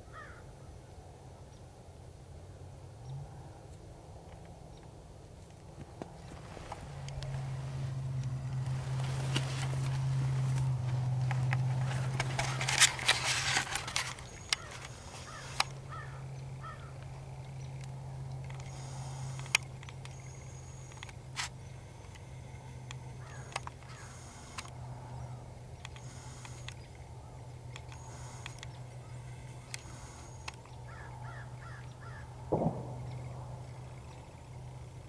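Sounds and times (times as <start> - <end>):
low hum: 0.9 - 35.0
small clicks: 4.2 - 16.0, 17.0 - 25.0, 25.7 - 30.8
camcorder handling rustle: 6.0 - 15.8.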